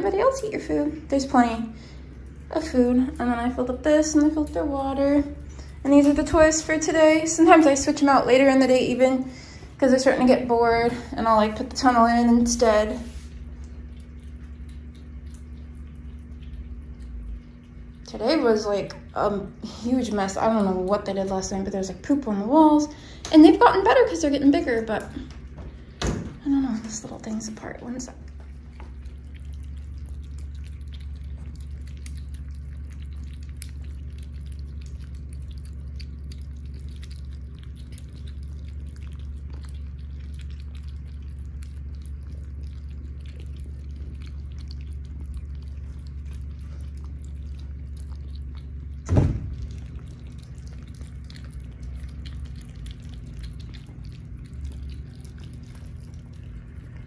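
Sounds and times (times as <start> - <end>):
kittens chewing wet food: 0.0 - 57.0
low hum: 0.0 - 57.0
short thump: 49.1 - 49.6.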